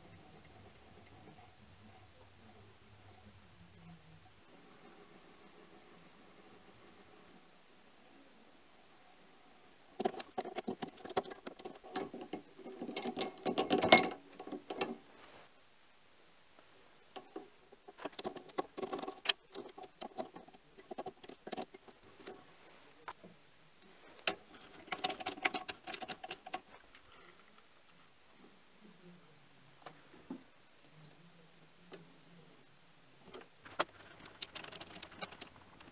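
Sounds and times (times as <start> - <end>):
metal clicks and rattles of lathe chuck: 10.0 - 15.0, 17.2 - 22.4, 24.2 - 26.7, 33.7 - 35.9.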